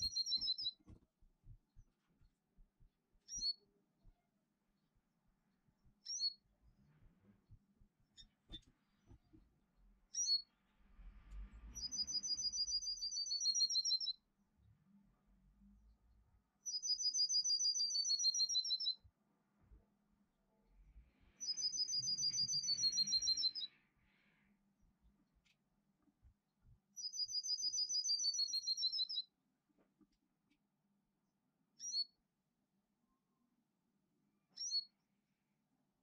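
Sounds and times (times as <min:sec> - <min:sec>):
songbird two-tone trills: 0:21.4 - 0:23.7.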